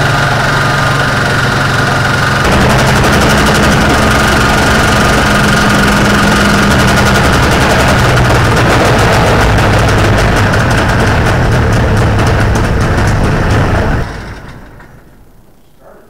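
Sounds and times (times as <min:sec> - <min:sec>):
two-stroke engine idling: 0:00.0 - 0:15.6.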